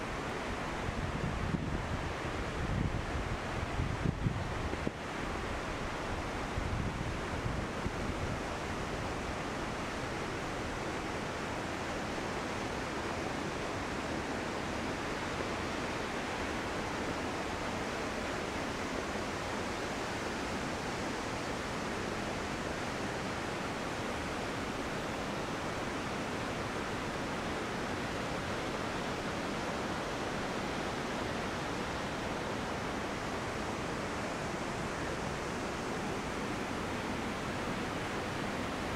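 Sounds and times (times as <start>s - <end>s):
waterfall rushing: 13.8s - 38.9s.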